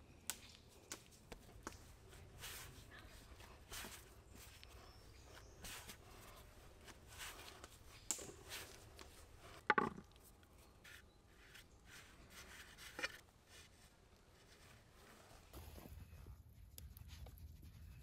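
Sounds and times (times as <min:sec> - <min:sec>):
knock on wooden board: 0:09.7 - 0:10.0.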